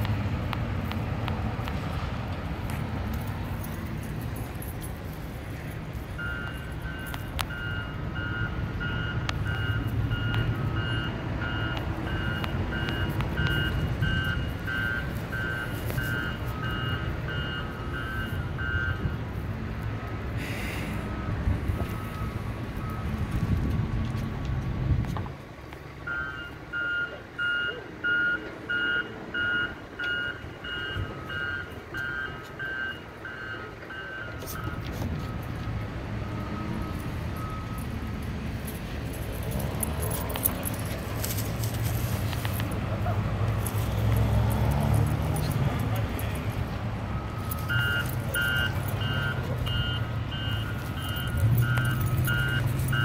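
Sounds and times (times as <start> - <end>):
low engine rumble: 0.0 - 53.0
light clicks and jingling: 0.8 - 7.5, 36.9 - 42.8, 50.7 - 53.0
back-up alarm beeping: 6.1 - 19.2, 26.1 - 35.5, 36.2 - 38.0, 47.1 - 53.0.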